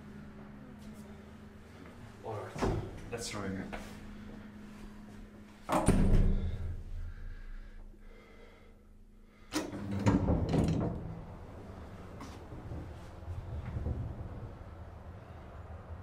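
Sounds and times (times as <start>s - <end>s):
elevator machinery hum: 0.0s - 16.0s
elevator heavy clunk and rumble: 5.6s - 7.2s, 9.5s - 16.0s.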